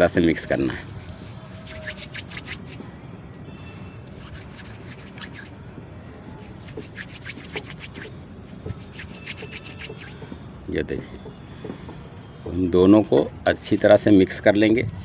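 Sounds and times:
hands rubbing putty: 0:00.9 - 0:02.8, 0:04.1 - 0:05.6, 0:06.4 - 0:10.2.

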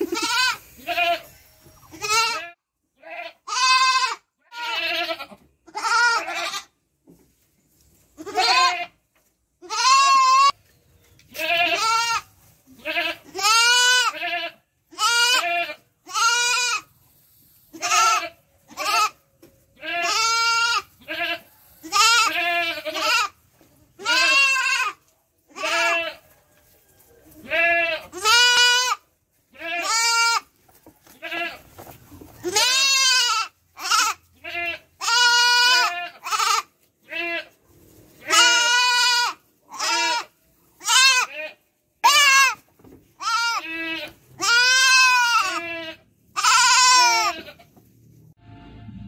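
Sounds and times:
young goat bleating: 0:00.0 - 0:06.8, 0:08.2 - 0:09.0, 0:09.6 - 0:10.6, 0:11.3 - 0:16.9, 0:17.7 - 0:19.2, 0:19.8 - 0:23.4, 0:24.0 - 0:26.2, 0:27.4 - 0:30.5, 0:31.1 - 0:31.6, 0:32.4 - 0:37.6, 0:38.2 - 0:42.6, 0:43.2 - 0:47.7.

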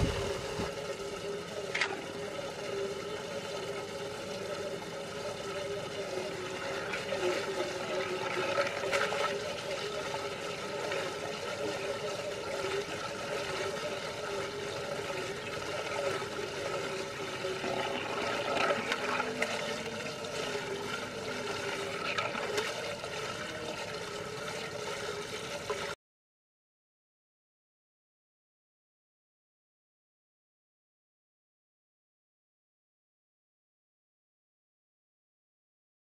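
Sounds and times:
steady hum: 0:00.0 - 0:26.0
water swirling and gurgling down drain: 0:00.0 - 0:26.0
toy truck splashing: 0:06.1 - 0:26.0.

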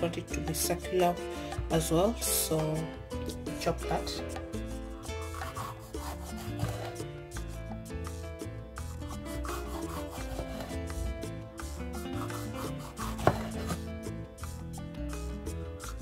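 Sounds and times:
soft background music: 0:00.0 - 0:16.0
knife knocking on wooden board: 0:13.0 - 0:13.8.

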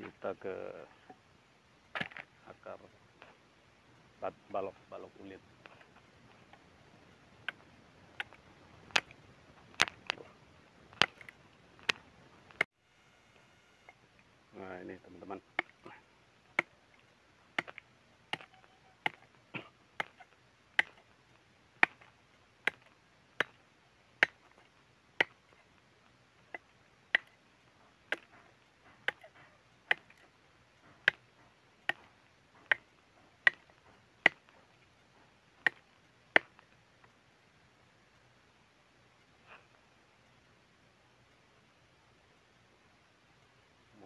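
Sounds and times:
machete chopping wood: 0:01.9 - 0:02.3, 0:08.2 - 0:09.1, 0:09.7 - 0:10.2, 0:10.9 - 0:12.0, 0:15.5 - 0:16.8, 0:17.6 - 0:19.4, 0:20.0 - 0:21.1, 0:21.8 - 0:23.6, 0:24.2 - 0:24.6, 0:25.2 - 0:25.6, 0:26.5 - 0:27.4, 0:28.1 - 0:30.3, 0:30.9 - 0:34.6, 0:35.6 - 0:36.6.

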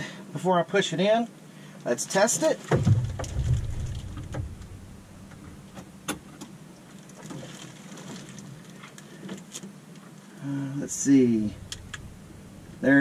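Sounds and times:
low steady hum: 0:02.6 - 0:07.2, 0:09.8 - 0:13.0.

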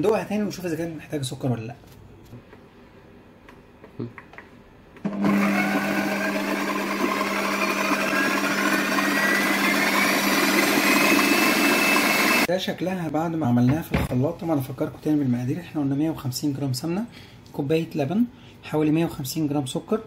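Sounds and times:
food processor motor whine: 0:05.0 - 0:12.5.

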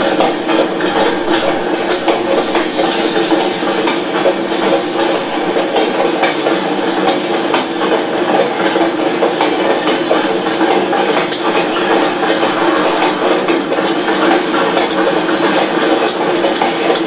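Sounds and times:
train wheels rumbling on rails: 0:00.0 - 0:17.0
wheels knocking on rail joints: 0:00.0 - 0:17.0.

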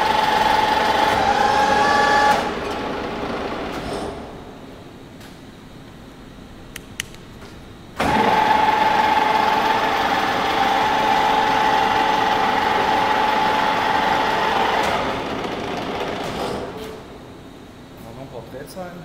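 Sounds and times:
milling machine whine: 0:00.0 - 0:05.0, 0:08.0 - 0:18.0.

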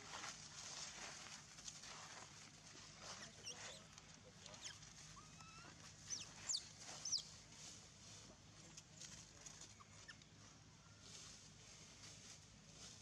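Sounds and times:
high-pitched animal calls: 0:04.6 - 0:07.3.

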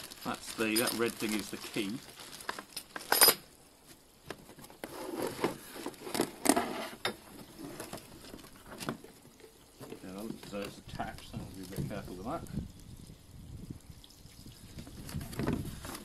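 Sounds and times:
plastic packaging rustling: 0:00.0 - 0:03.2, 0:03.9 - 0:12.4.

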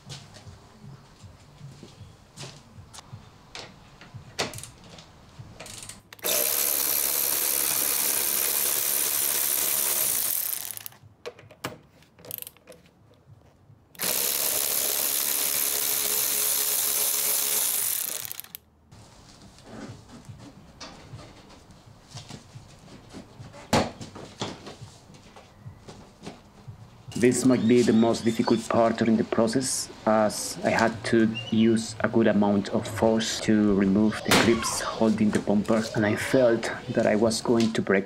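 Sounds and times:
power ratchet wrench running: 0:06.2 - 0:11.0, 0:14.0 - 0:18.6.

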